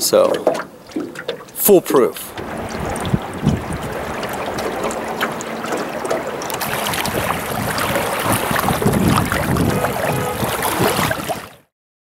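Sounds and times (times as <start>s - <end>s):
water lapping against boat hull: 0.0s - 11.7s
wind on microphone: 2.3s - 11.6s.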